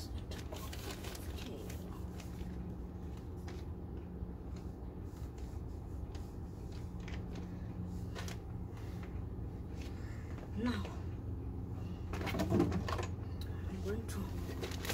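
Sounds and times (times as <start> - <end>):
plastic sack crinkling: 0.0 - 2.8, 14.4 - 14.9
steady low hum: 0.0 - 14.9.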